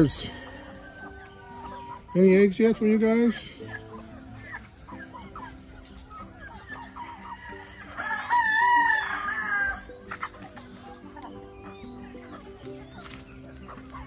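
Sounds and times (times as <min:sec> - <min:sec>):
hens clucking softly: 0:00.0 - 0:08.0
rooster crowing: 0:07.2 - 0:09.9.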